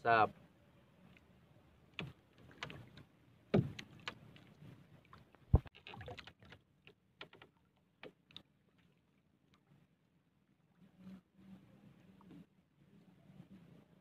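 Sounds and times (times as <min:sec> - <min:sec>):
knocks against boat hull: 0:03.5 - 0:03.8.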